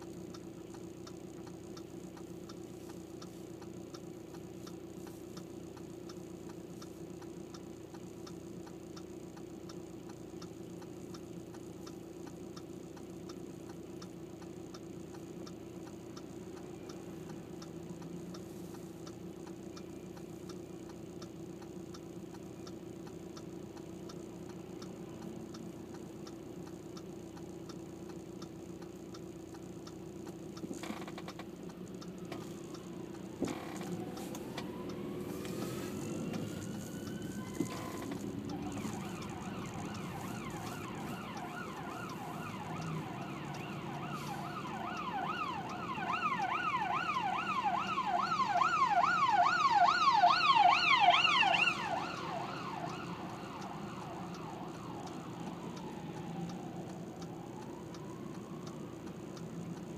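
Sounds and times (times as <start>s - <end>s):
car hum: 0.0s - 59.9s
emergency vehicle siren: 32.0s - 59.8s.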